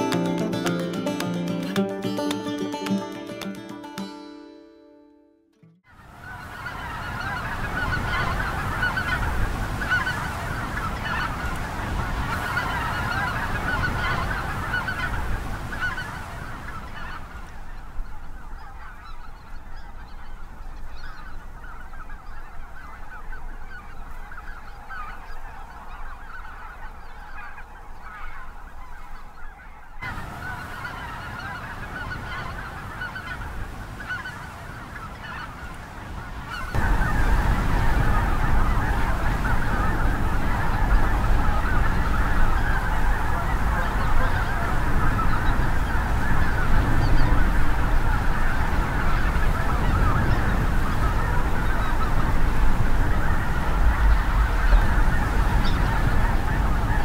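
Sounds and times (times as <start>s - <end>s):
geese honking: 0.0s - 4.0s, 5.9s - 57.0s.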